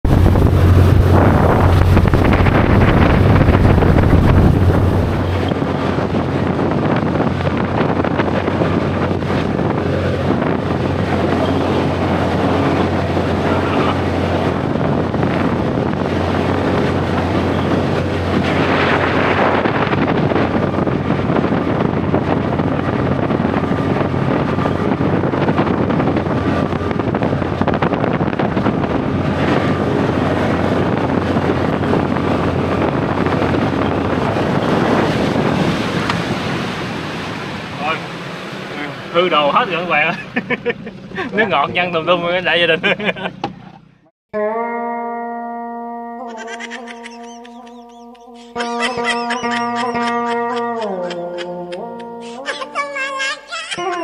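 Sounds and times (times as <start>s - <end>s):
wind on microphone: 0.0s - 39.1s
boat engine running: 0.0s - 54.0s.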